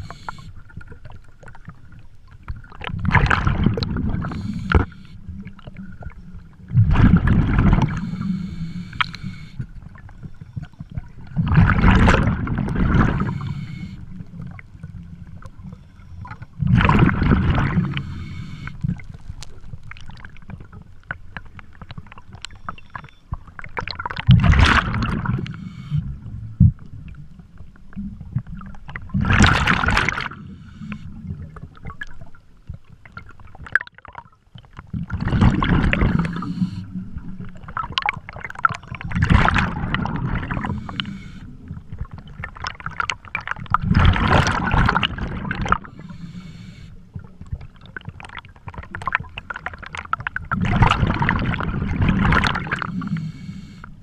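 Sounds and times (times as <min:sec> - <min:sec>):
low underwater rumbling: 0:00.0 - 0:54.0
diver exhaling bubbles: 0:03.0 - 0:05.7, 0:06.7 - 0:09.5, 0:11.3 - 0:14.2, 0:16.6 - 0:19.1, 0:23.9 - 0:26.7, 0:34.9 - 0:42.9, 0:43.6 - 0:46.6, 0:50.4 - 0:53.6.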